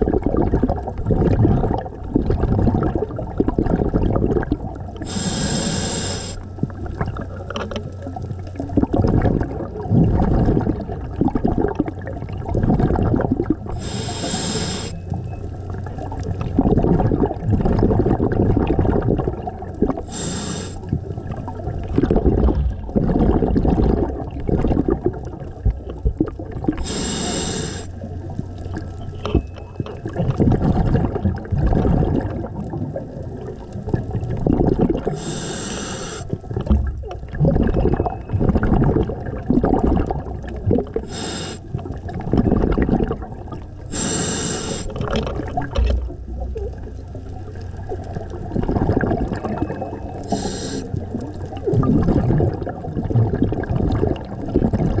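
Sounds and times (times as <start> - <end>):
gurgling exhaust bubbles: 0.0 - 55.0
regulator inhale hisses: 5.0 - 6.5, 13.8 - 15.0, 20.0 - 20.9, 26.8 - 28.0, 35.1 - 36.4, 41.0 - 41.7, 43.9 - 45.0, 50.2 - 51.0.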